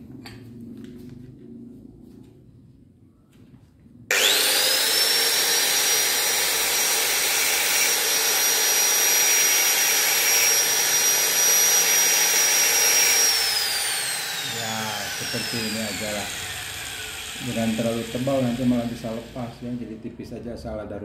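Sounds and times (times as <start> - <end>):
angle grinder whining: 4.1 - 20.0.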